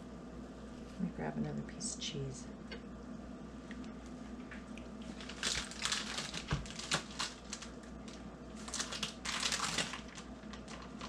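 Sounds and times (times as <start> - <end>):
plastic package crinkling: 5.0 - 11.0.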